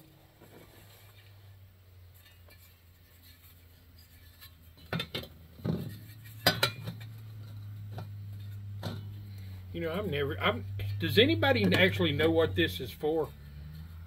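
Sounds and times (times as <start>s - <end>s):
metal pots knocking and clinking: 4.8s - 9.1s
low hum: 5.5s - 14.0s.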